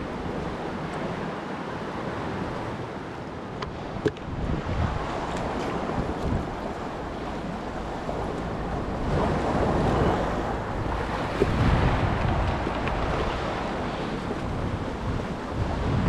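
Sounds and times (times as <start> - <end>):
waves washing over rocks: 0.0 - 16.0
wind buffeting microphone: 0.0 - 16.0.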